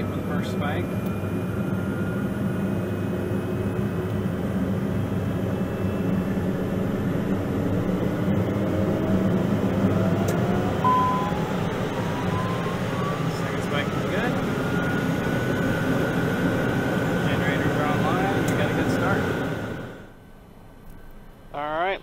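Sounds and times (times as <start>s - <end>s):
turboprop engine spooling up: 0.0s - 20.2s
short beep: 10.8s - 11.5s.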